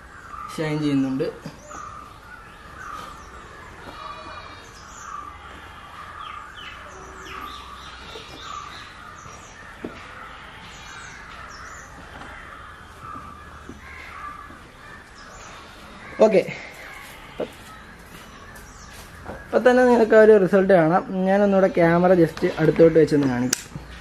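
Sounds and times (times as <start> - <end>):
small birds chirping: 0.0 - 24.0
crows cawing: 1.6 - 19.4.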